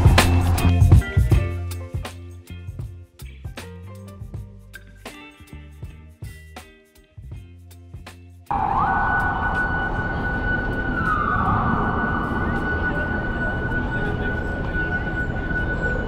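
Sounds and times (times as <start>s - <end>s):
city street traffic: 8.5s - 16.0s
emergency vehicle siren: 8.5s - 16.0s.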